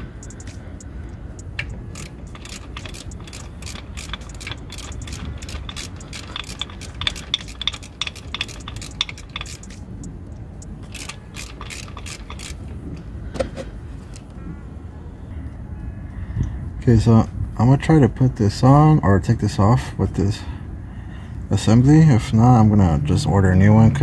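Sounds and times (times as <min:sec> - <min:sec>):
ratchet wrench clicking: 0:00.0 - 0:12.8
low hum: 0:00.0 - 0:16.6.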